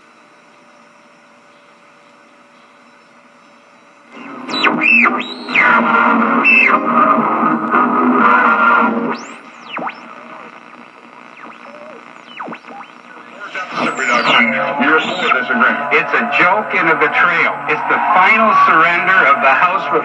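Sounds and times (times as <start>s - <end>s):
radio static hiss: 4.0s - 20.0s
music from radio: 4.1s - 20.0s
radio tuning whistles: 4.1s - 20.0s.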